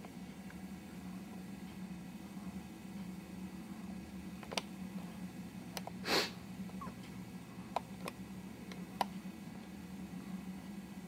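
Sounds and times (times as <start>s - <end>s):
steady low hum: 0.0s - 11.0s
short breathy hiss: 6.0s - 6.4s.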